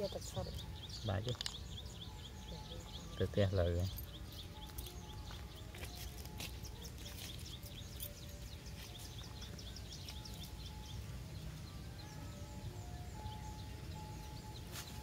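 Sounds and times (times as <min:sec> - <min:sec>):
bird chirping rapidly: 0:00.0 - 0:05.3, 0:06.0 - 0:15.0.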